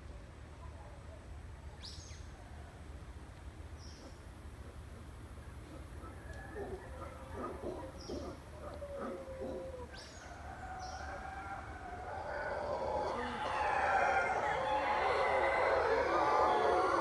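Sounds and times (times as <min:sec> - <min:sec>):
howler monkeys howling: 0:05.6 - 0:17.0.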